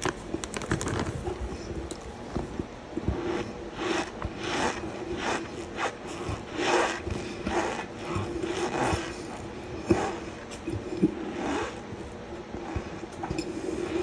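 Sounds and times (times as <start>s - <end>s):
fingers rubbing cornstarch: 3.0s - 10.4s.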